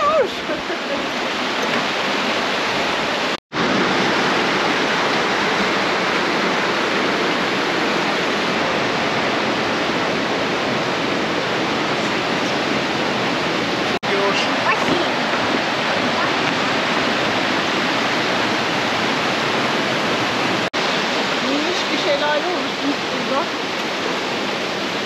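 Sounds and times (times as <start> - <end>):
stream rushing over rocks: 0.0 - 25.0.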